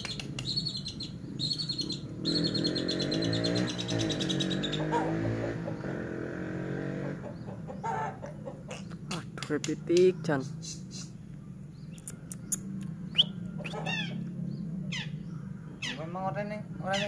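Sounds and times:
bird singing high chattering trill: 0:00.0 - 0:06.0, 0:09.8 - 0:17.0.

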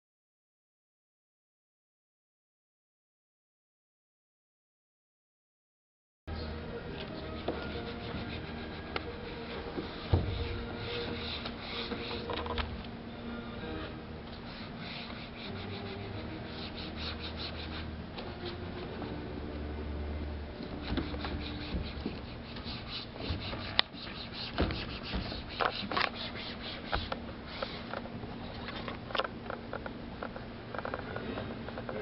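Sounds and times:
hands rubbing paint on canvas: 0:07.2 - 0:12.7, 0:14.3 - 0:19.0, 0:20.6 - 0:28.9.

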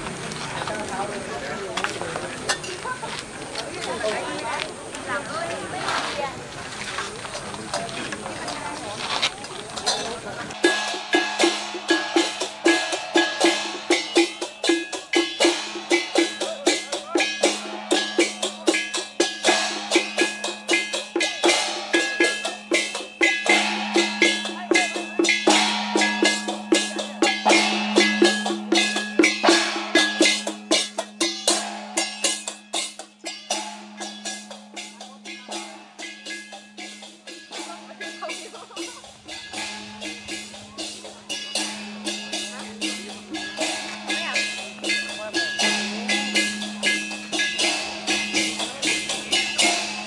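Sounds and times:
drums beating: 0:09.6 - 0:50.0
cymbals crashing: 0:09.9 - 0:50.0
gongs struck: 0:10.6 - 0:50.0.

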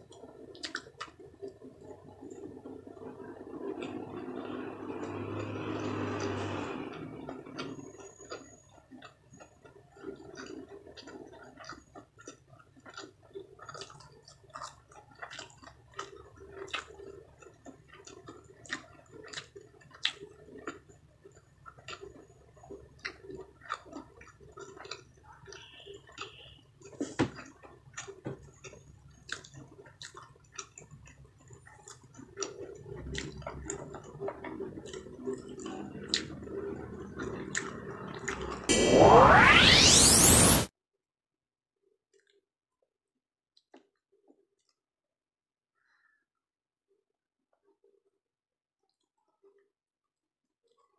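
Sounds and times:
wet chewing clicks and smacks: 0:00.0 - 0:04.0, 0:07.5 - 0:38.6.

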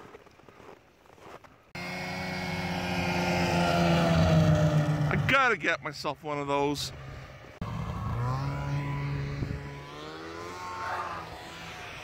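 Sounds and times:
snowmobile engine passing by: 0:01.7 - 0:05.6, 0:06.3 - 0:12.0.

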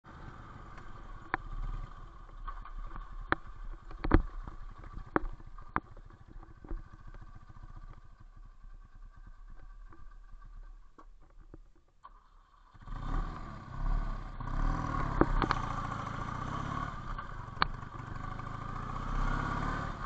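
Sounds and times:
motorcycle engine running: 0:00.0 - 0:20.0
knocks and rattles over rough ground: 0:00.2 - 0:12.7, 0:14.4 - 0:16.3.

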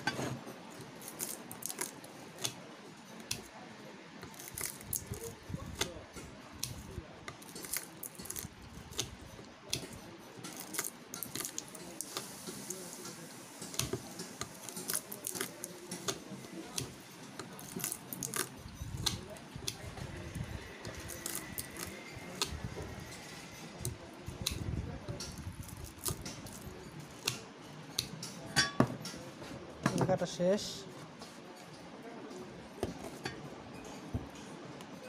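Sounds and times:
wire being handled: 0:00.0 - 0:03.5, 0:04.2 - 0:19.9.

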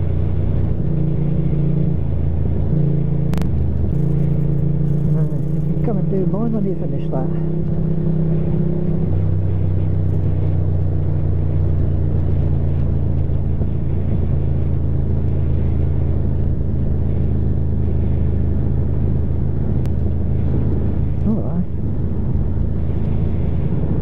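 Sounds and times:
motorcycle engine droning: 0:00.0 - 0:24.0
rush of wind noise: 0:07.4 - 0:24.0.

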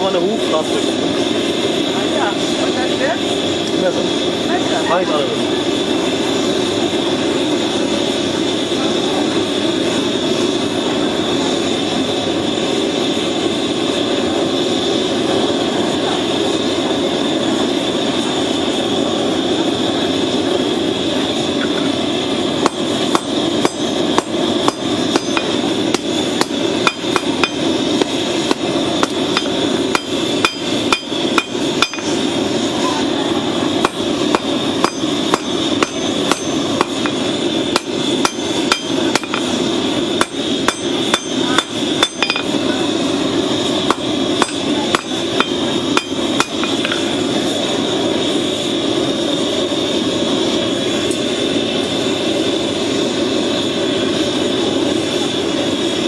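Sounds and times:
hammer ringing on anvil: 0:22.6 - 0:27.7, 0:28.5 - 0:32.2, 0:33.8 - 0:39.5, 0:40.2 - 0:42.6, 0:43.9 - 0:47.0.

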